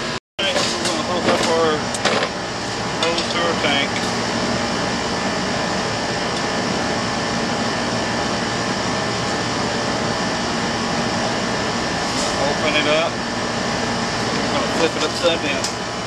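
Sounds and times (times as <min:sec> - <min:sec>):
air conditioner outdoor unit humming: 0:00.0 - 0:16.0.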